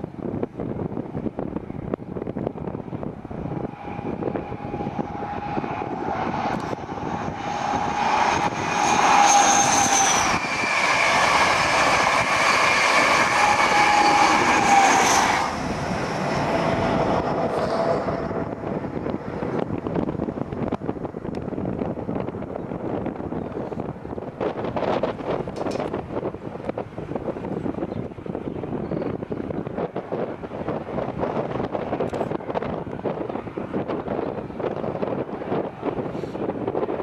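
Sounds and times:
train passing at speed: 0:00.0 - 0:28.4, 0:29.1 - 0:37.0
wheel and rail noise: 0:00.0 - 0:37.0.

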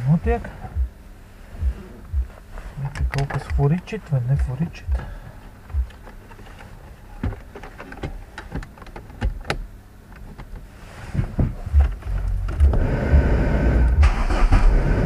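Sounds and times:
steady low rumble: 0:00.0 - 0:15.0
switch clicks: 0:02.9 - 0:03.9.

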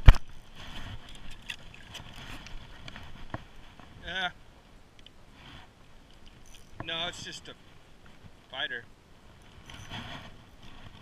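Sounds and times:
faint rustling of gear: 0:05.3 - 0:08.4, 0:09.3 - 0:11.0.

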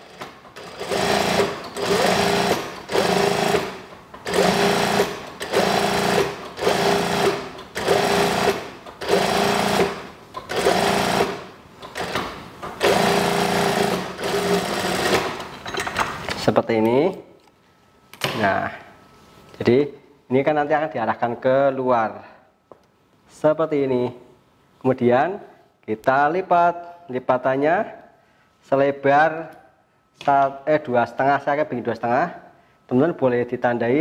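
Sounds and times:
sewing machine stitching: 0:00.0 - 0:15.5.

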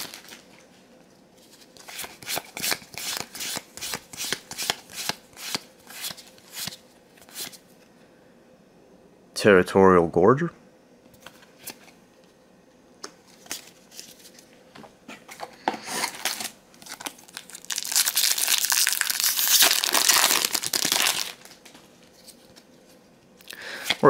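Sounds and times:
foil wrapper crinkling: 0:00.0 - 0:00.4, 0:16.0 - 0:21.6.

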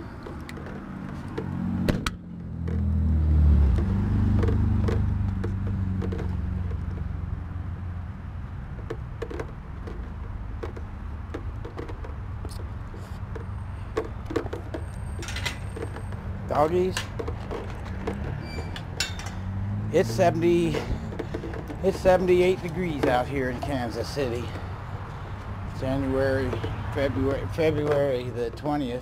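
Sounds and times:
vehicle engine hum: 0:00.0 - 0:29.0
footsteps: 0:11.6 - 0:29.0
metal clicks at chain-link gate: 0:18.5 - 0:19.4.

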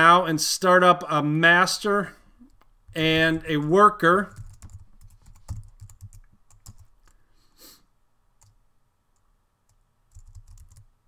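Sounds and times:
keyboard keys clicking: 0:04.4 - 0:07.1, 0:09.7 - 0:10.9.

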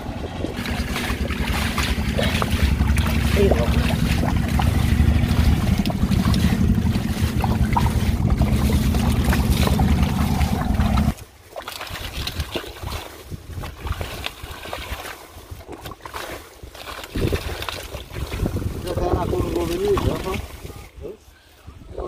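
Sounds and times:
loud low rumble: 0:00.0 - 0:11.2
splashing in muddy water: 0:00.0 - 0:21.2.

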